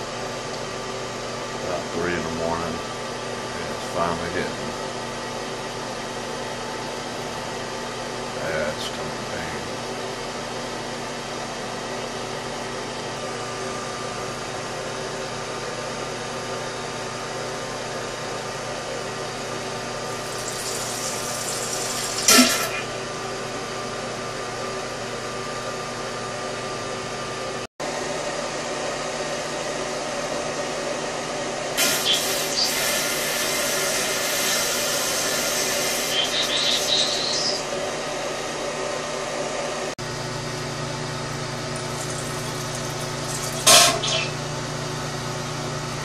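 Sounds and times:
fan humming: 0:31.6 - 0:46.0.

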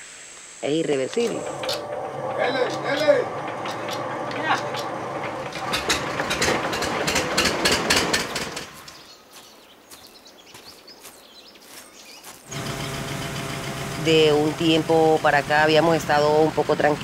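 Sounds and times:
sharp engine exhaust beats: 0:01.3 - 0:09.0, 0:12.5 - 0:17.0
low engine hum: 0:12.5 - 0:17.0.

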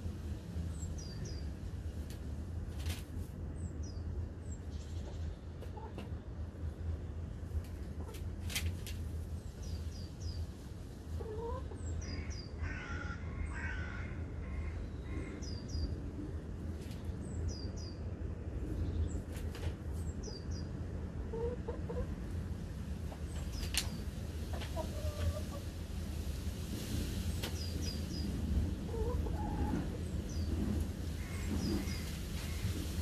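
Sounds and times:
hens clucking: 0:05.1 - 0:06.2, 0:11.2 - 0:11.9, 0:21.2 - 0:22.2, 0:23.2 - 0:25.7, 0:28.8 - 0:32.7.

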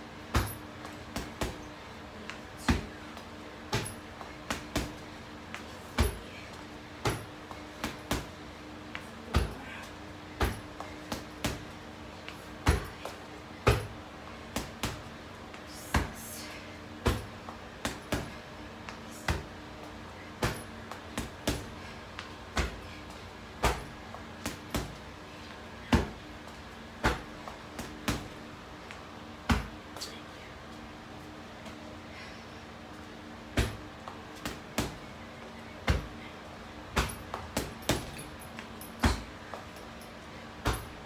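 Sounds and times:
low steady hum: 0:00.0 - 0:41.0
punches thudding on heavy bag: 0:00.3 - 0:01.7, 0:03.7 - 0:05.0, 0:05.9 - 0:06.4, 0:07.0 - 0:08.3, 0:09.3 - 0:09.8, 0:10.4 - 0:11.6, 0:12.6 - 0:13.9, 0:17.0 - 0:18.4, 0:20.4 - 0:21.8, 0:22.5 - 0:22.9, 0:23.6 - 0:25.0, 0:25.8 - 0:26.2, 0:27.0 - 0:28.4, 0:29.4 - 0:29.8, 0:33.5 - 0:35.0, 0:35.8 - 0:36.2, 0:36.9 - 0:38.3, 0:39.0 - 0:39.4, 0:40.6 - 0:41.0.

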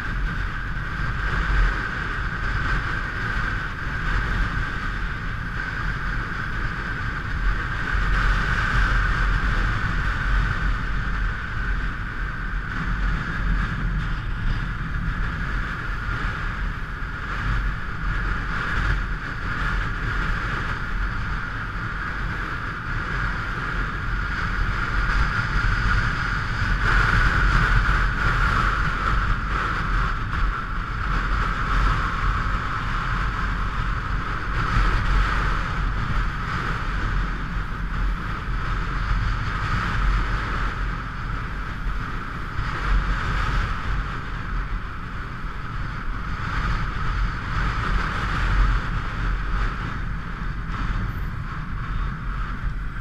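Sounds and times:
motorcycle engine rumble: 0:00.0 - 0:53.0.

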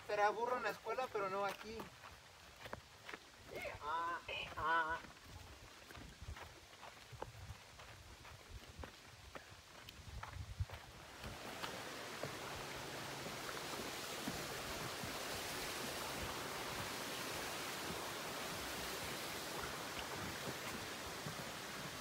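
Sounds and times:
footsteps on wooden planks: 0:01.0 - 0:03.6, 0:04.5 - 0:15.3, 0:17.8 - 0:22.0
creek rushing: 0:10.8 - 0:22.0.

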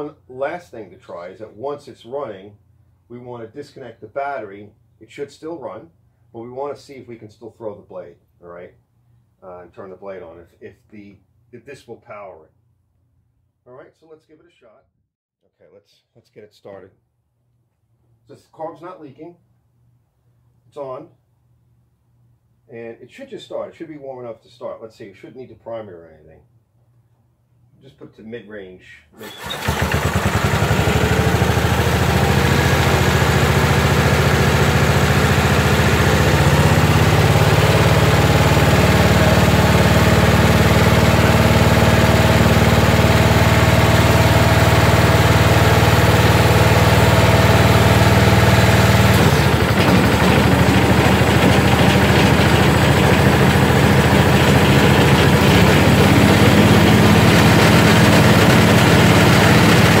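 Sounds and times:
lawn tractor engine running: 0:29.2 - 1:00.0.

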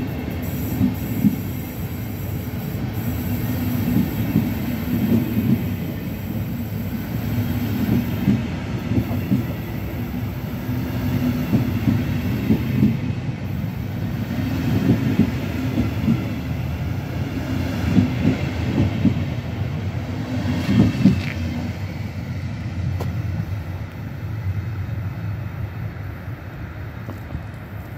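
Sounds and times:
train coaches rumbling past: 0:00.0 - 0:27.9
wheels clacking over rail joints: 0:20.4 - 0:21.9.

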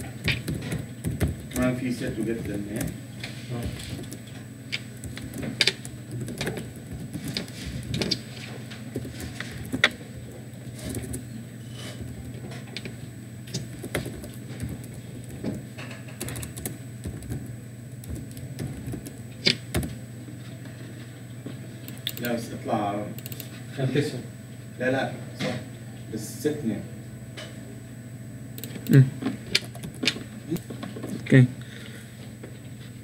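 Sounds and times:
keyboard typing: 0:00.0 - 0:10.0, 0:10.7 - 0:11.4, 0:13.5 - 0:20.0, 0:21.9 - 0:22.4, 0:23.2 - 0:23.5, 0:28.6 - 0:30.7
steady low hum: 0:00.0 - 0:33.0.

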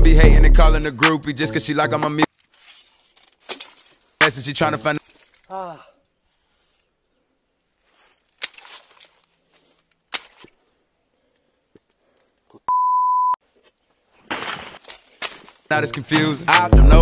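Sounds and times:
high-pitched censor beep: 0:12.7 - 0:13.4.

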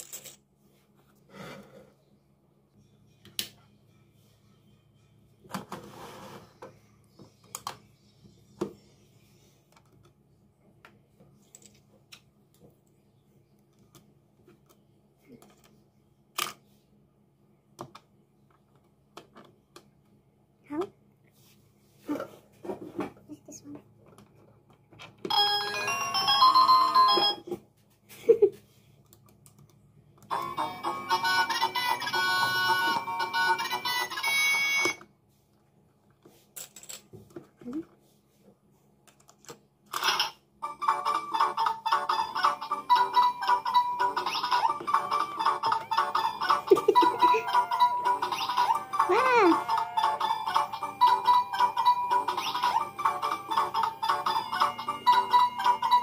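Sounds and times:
plastic coins being handled: 0:00.0 - 0:00.4.

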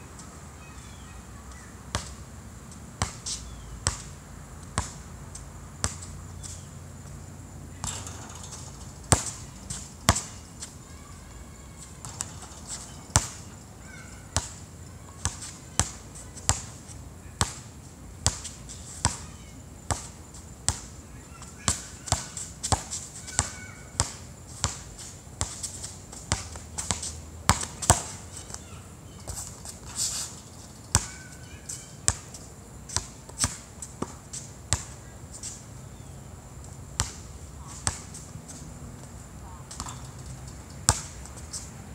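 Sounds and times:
basketball bouncing on hard court: 0:07.8 - 0:10.4, 0:12.0 - 0:14.5, 0:26.2 - 0:28.2, 0:39.6 - 0:40.1, 0:40.9 - 0:41.2.

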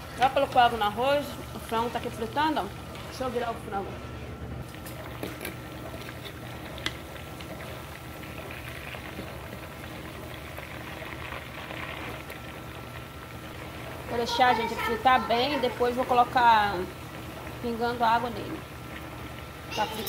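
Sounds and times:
chicken frying in hot oil: 0:04.6 - 0:20.0.

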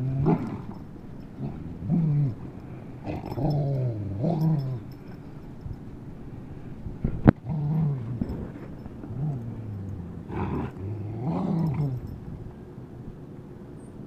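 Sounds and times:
dog play-growling: 0:00.0 - 0:05.6, 0:07.0 - 0:12.6.

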